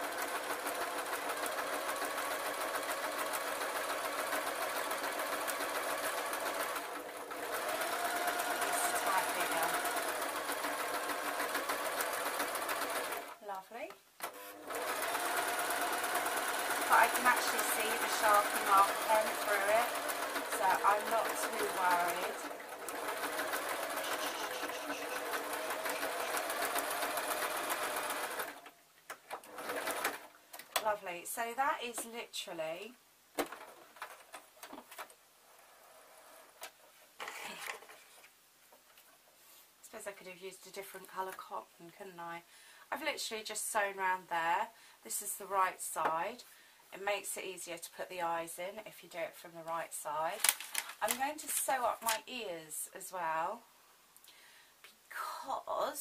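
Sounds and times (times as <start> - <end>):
sewing machine stitching: 0.0 - 13.4, 14.2 - 28.7, 29.3 - 30.4.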